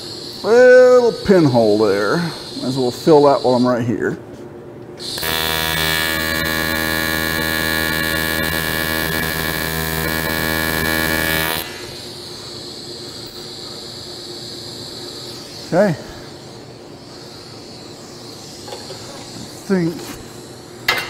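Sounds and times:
welding arc buzzing: 0.0 - 3.7, 5.0 - 17.1.

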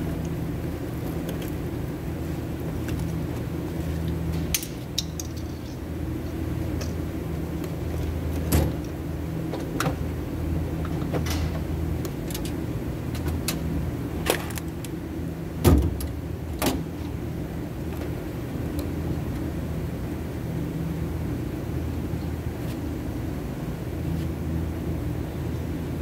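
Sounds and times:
steady low hum: 0.0 - 26.0
metal parts clicking and knocking: 4.5 - 5.8.

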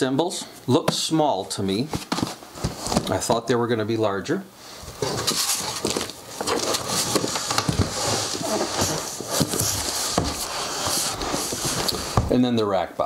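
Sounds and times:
cardboard boxes scraping and bumping: 2.0 - 3.2, 4.9 - 12.4.

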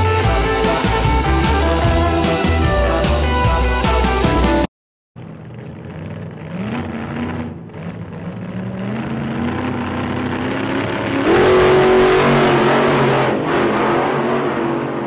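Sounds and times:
car engine accelerating: 5.2 - 15.0.

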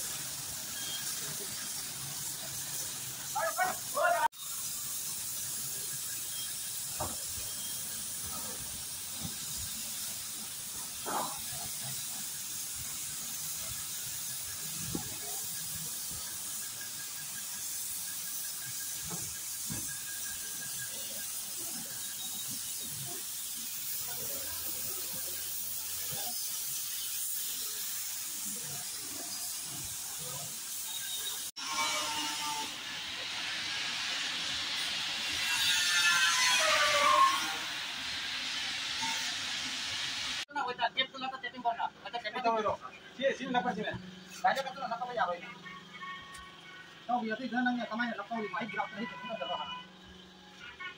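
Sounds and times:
paint spray gun hissing: 0.0 - 31.6.

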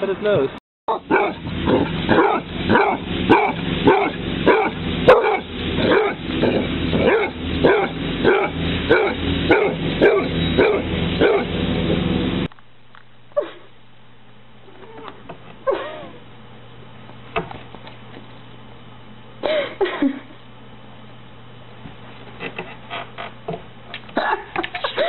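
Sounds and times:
dog barking: 0.9 - 6.2, 7.0 - 11.5.

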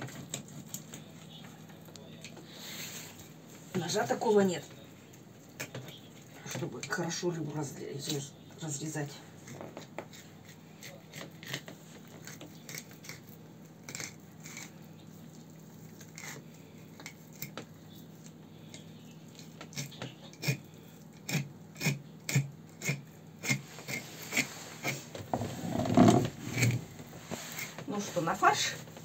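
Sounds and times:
knife cutting and scraping fish: 0.0 - 1.2, 9.4 - 28.7.

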